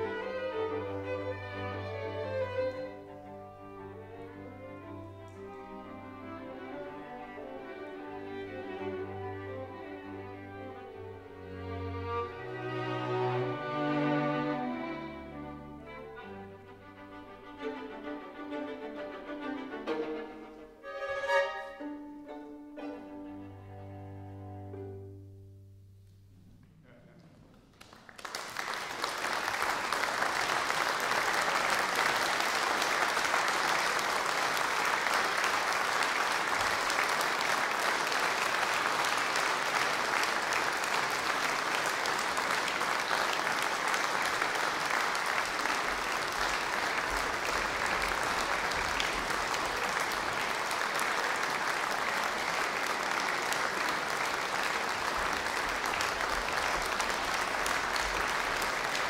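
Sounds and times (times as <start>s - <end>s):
audience applauding: 27.1s - 59.0s.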